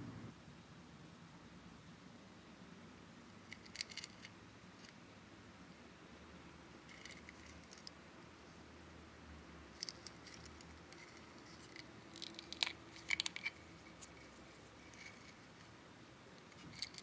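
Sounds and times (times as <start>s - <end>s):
plastic case and chain rattling: 9.8s - 14.1s, 16.5s - 17.0s.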